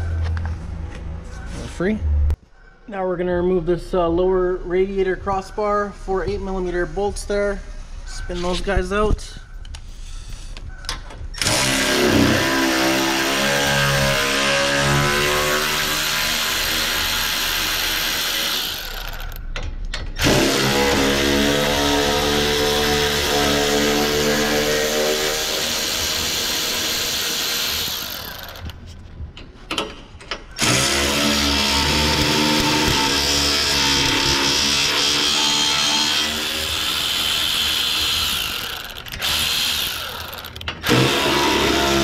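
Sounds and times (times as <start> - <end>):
electric ratchet spinning bolts: 11.4 - 13.9, 14.8 - 19.5, 24.6 - 28.8, 30.6 - 42.0.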